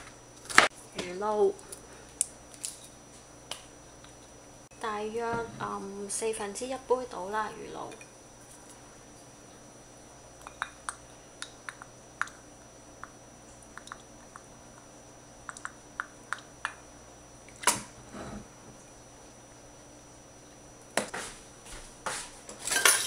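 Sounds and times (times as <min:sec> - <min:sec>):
liquid dripping into cup: 0:13.0 - 0:14.4.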